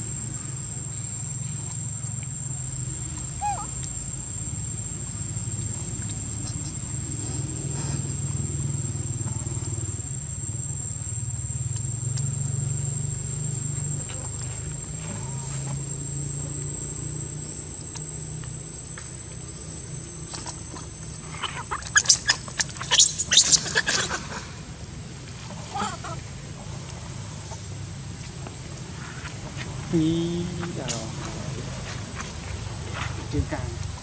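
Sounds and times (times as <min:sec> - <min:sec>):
steady low hum: 0:00.0 - 0:34.0
thin high whine: 0:00.0 - 0:34.0
young monkey screaming: 0:03.3 - 0:03.9, 0:21.2 - 0:24.4, 0:25.7 - 0:26.2.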